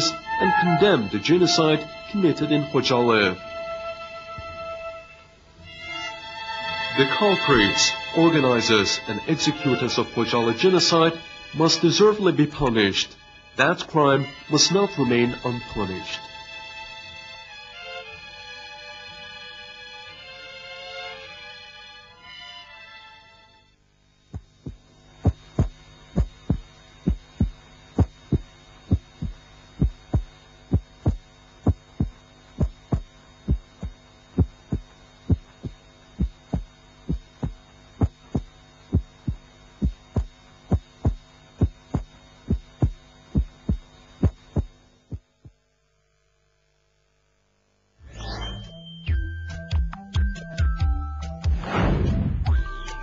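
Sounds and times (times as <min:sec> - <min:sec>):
steady hum: 0:00.0 - 0:50.0
double thumps: 0:24.3 - 0:45.6.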